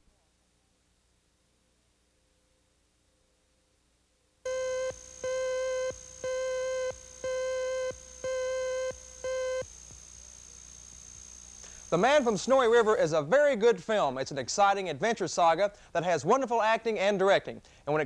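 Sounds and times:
faint high whine: 0.0s - 15.9s
steady beeps: 4.5s - 13.0s.

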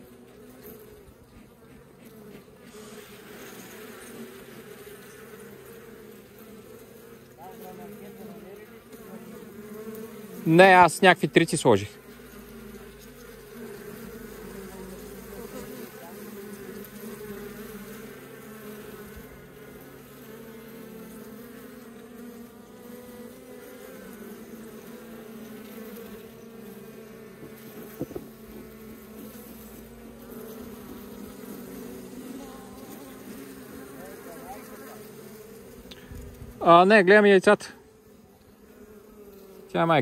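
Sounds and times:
honeybees buzzing: 0.0s - 40.0s
brief knock: 27.4s - 28.3s.

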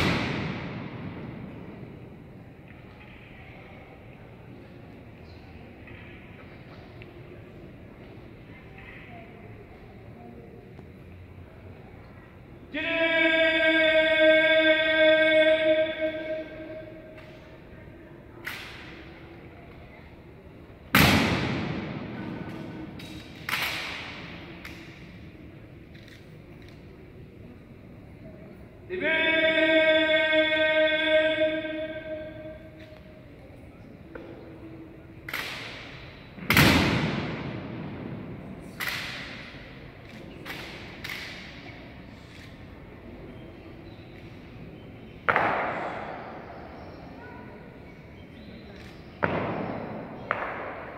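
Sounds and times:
sharp echoing impacts: 0.0s - 2.9s, 20.8s - 25.9s, 34.0s - 42.0s, 45.2s - 46.9s, 49.1s - 50.9s.

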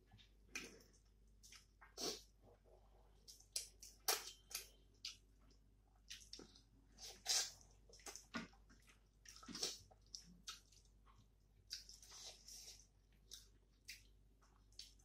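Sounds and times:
chewing and lip-smacking: 3.3s - 12.4s, 13.1s - 15.0s.

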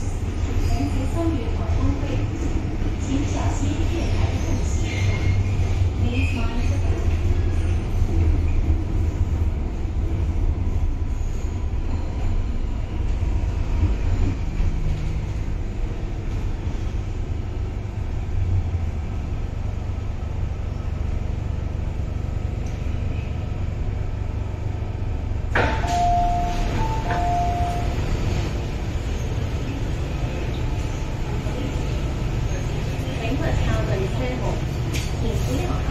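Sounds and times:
train rumbling: 0.0s - 35.9s
click: 22.6s - 22.8s.

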